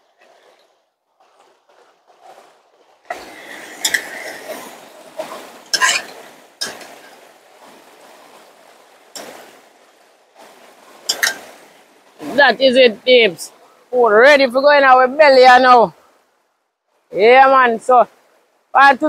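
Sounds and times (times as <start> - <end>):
utensil clinking against pot: 11.1 - 11.4.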